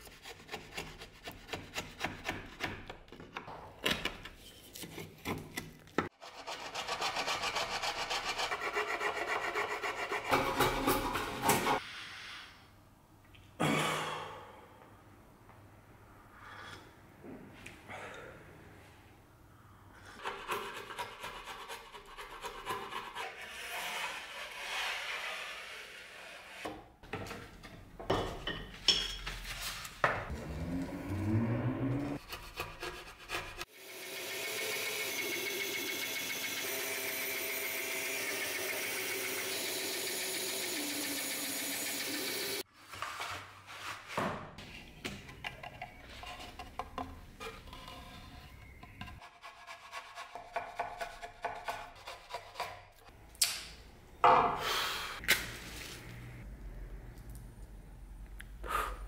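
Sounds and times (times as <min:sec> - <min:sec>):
band saw cutting wood: 0:30.3 - 0:42.6.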